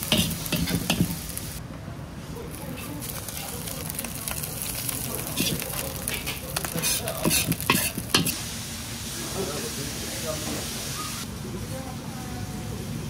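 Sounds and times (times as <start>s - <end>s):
metal ladle scraping a wok: 0.0s - 1.2s, 4.6s - 8.4s
rice sizzling in a wok: 0.0s - 1.6s, 2.5s - 11.3s.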